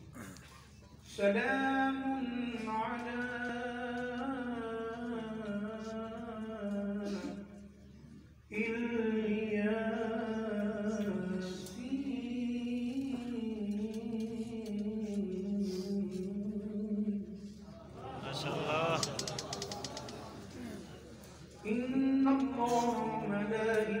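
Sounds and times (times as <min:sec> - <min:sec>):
man chanting: 0:21.6 - 0:24.0.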